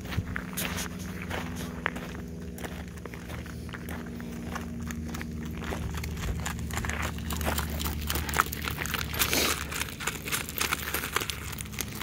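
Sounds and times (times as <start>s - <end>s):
cart wheels rolling over gravel: 0.0s - 12.0s
pony hooves on gravel: 0.0s - 12.0s.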